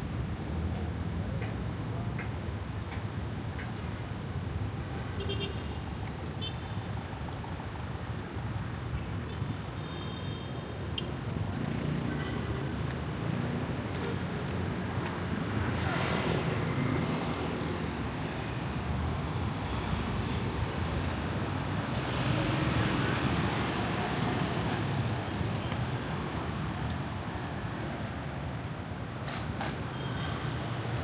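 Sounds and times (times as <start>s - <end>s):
road traffic: 0.0s - 31.0s
vehicles passing: 11.0s - 31.0s.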